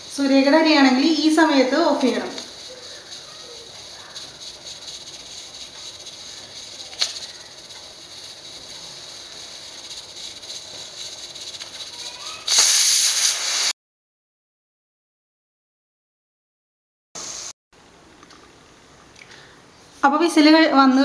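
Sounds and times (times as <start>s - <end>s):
pressure cooker whistle steam burst: 12.2s - 13.8s.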